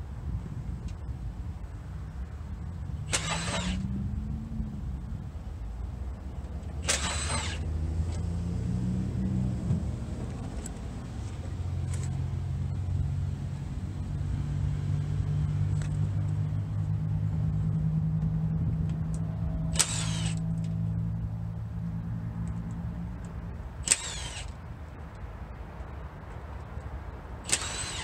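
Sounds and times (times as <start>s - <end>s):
cordless power tool whine: 3.1s - 4.0s, 6.8s - 8.2s, 19.7s - 20.5s, 23.8s - 24.6s, 27.5s - 28.0s.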